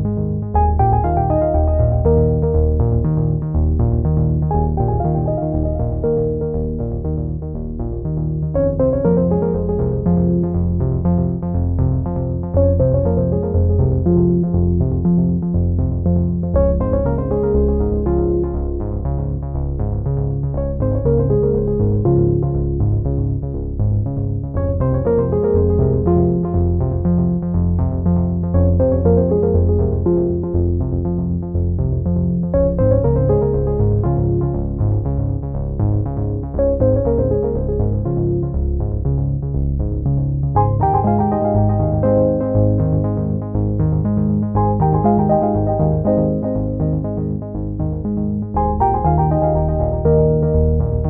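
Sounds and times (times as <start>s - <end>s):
synthesizer bass line: 0.0s - 51.0s
synthesizer keyboard tune: 0.6s - 3.5s, 4.4s - 7.2s, 8.5s - 10.6s, 28.6s - 31.3s, 36.6s - 38.8s, 40.5s - 51.0s.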